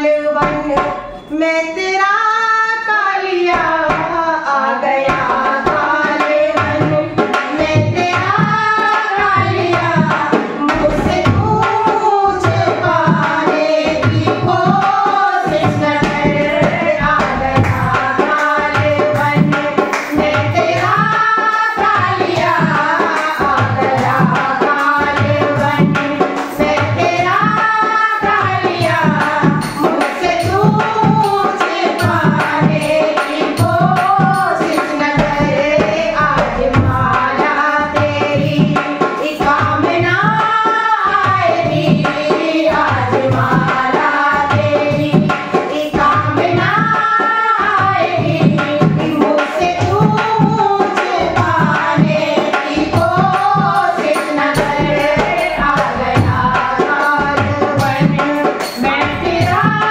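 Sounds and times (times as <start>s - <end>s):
hand drum rhythm: 0.0s - 1.3s, 3.4s - 59.9s
women singing devotional song: 0.0s - 59.9s.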